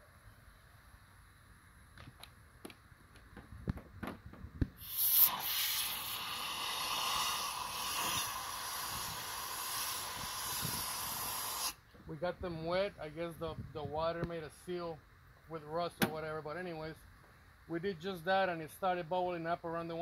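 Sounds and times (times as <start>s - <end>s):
compressed air hissing: 4.7s - 11.8s.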